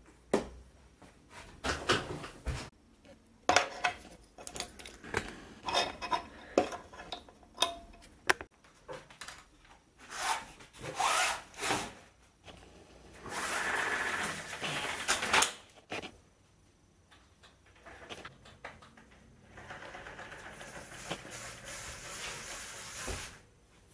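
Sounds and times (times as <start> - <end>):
rustling and scraping: 10.0 - 16.2, 19.5 - 23.9.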